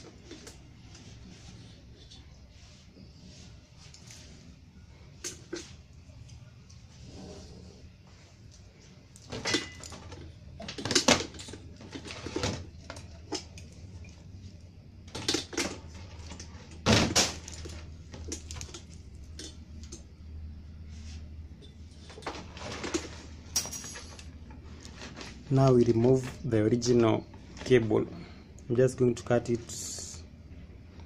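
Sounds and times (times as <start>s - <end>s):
wires and plastic connectors clattering: 0.0s - 2.4s, 8.5s - 20.2s, 21.6s - 30.1s
steady low hum: 0.0s - 31.0s.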